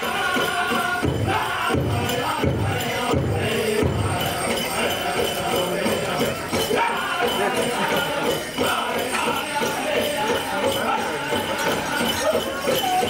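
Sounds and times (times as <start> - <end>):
bells jingling: 0.0 - 13.0
group singing: 0.0 - 13.0
steady drumbeat: 0.0 - 13.0.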